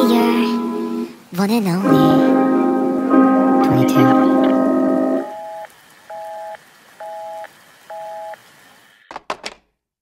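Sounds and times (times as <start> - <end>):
telephone busy signal beeping: 5.2 - 8.4.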